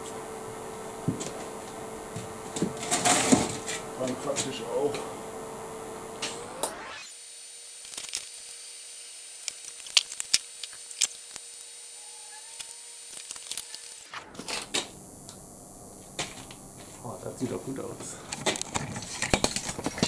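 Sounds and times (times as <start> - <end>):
welding arc crackling: 6.0 - 20.0.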